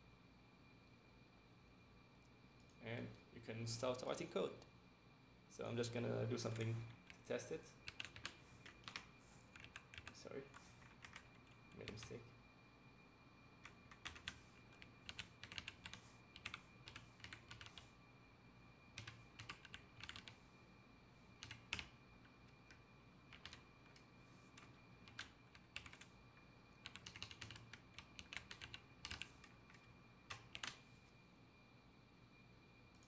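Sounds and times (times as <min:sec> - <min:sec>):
typing on computer keyboard: 0:07.8 - 0:12.2, 0:13.6 - 0:17.9, 0:19.0 - 0:20.4, 0:21.4 - 0:22.0, 0:22.7 - 0:24.0, 0:24.6 - 0:26.1, 0:26.8 - 0:30.8.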